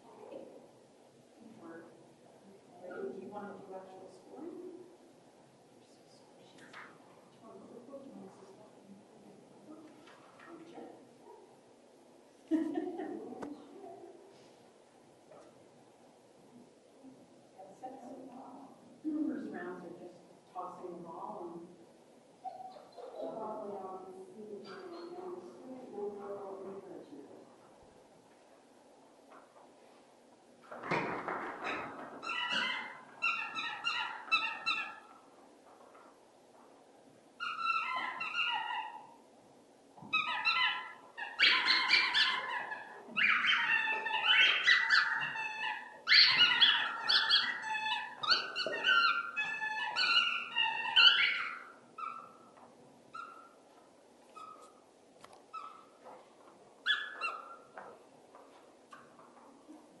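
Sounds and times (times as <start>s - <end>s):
dog barking and yelping: 32.2s - 35.2s, 37.4s - 39.2s, 40.1s - 52.5s, 53.1s - 53.6s, 56.8s - 57.7s.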